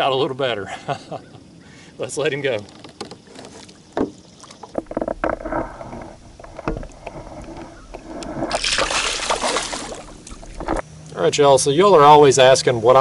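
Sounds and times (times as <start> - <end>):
water sloshing against kayak: 2.5 - 10.8
knocks on kayak hull: 4.0 - 8.0
loud water splashing: 8.0 - 10.8.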